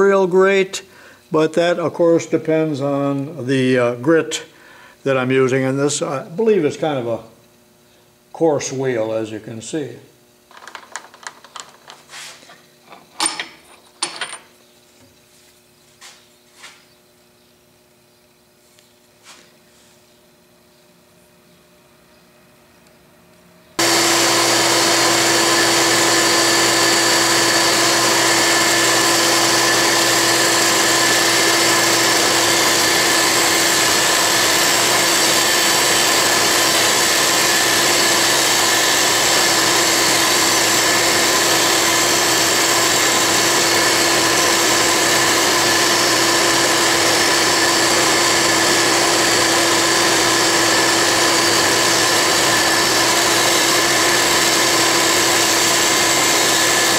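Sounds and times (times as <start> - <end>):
vacuum cleaner running: 10.5 - 14.4, 23.7 - 56.9
grinder grinding metal: 23.8 - 56.9.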